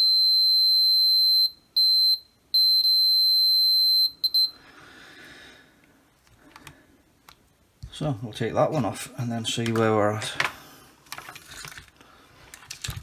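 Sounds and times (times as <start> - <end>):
multimeter continuity beep: 0.0 - 4.6.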